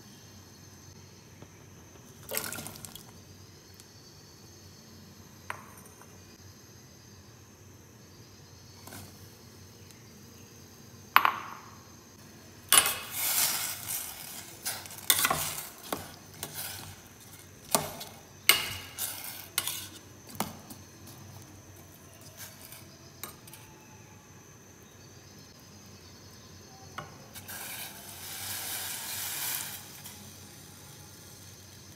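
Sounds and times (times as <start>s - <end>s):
spoon stirring in steel pan: 12.7s - 23.6s.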